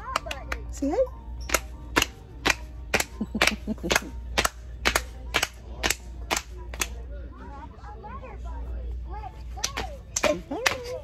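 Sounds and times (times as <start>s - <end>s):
child clapping hands: 0.0s - 0.7s, 1.5s - 7.0s, 9.6s - 10.9s.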